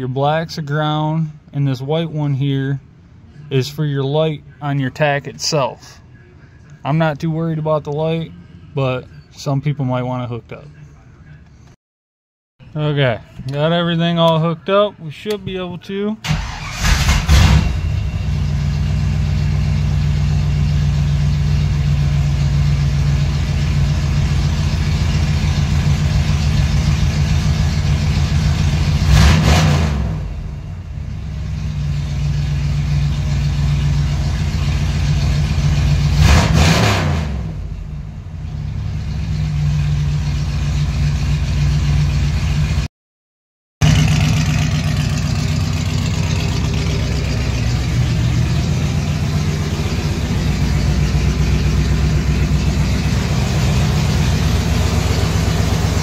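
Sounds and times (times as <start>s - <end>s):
car engine idling and revving: 16.2s - 42.9s, 43.8s - 56.0s.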